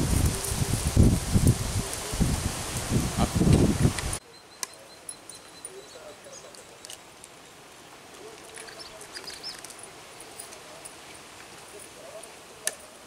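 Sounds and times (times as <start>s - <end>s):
wind buffeting microphone: 0.0s - 4.2s
grass rustling: 0.0s - 13.0s
faint high chirps: 4.2s - 7.0s.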